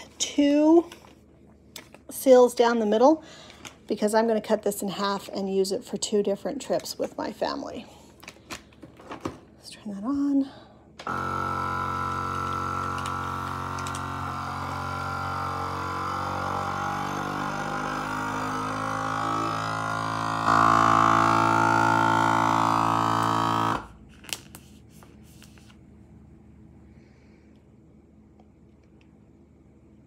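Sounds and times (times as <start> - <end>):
vacuum sealer pump drone: 11.0 - 24.1.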